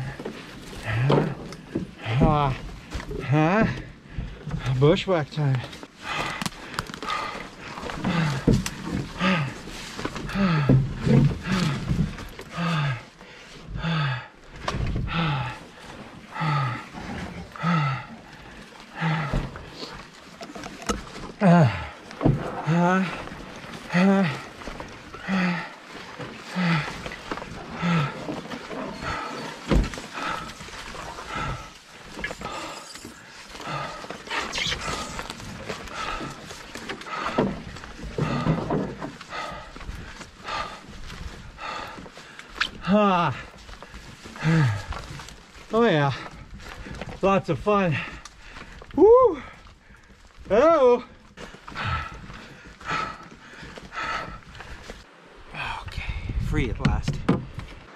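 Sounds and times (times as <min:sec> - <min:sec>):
heavy breathing: 0:00.0 - 0:56.4
man grunting with exertion: 0:21.4 - 0:22.0, 0:23.9 - 0:24.5, 0:44.4 - 0:45.0.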